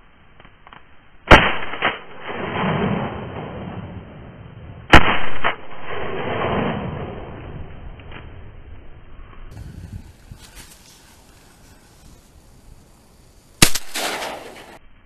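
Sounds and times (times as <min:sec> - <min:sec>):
shotgun shots: 0:01.3 - 0:03.9, 0:04.9 - 0:07.1, 0:13.6 - 0:14.8
rolling echo: 0:13.6 - 0:14.8.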